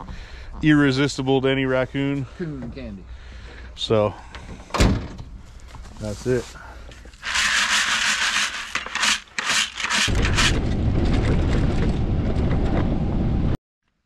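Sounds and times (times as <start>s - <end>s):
sharp scrapes: 6.0s - 10.6s
utility vehicle engine rumble: 10.1s - 13.6s
wind buffeting microphone: 10.1s - 13.6s.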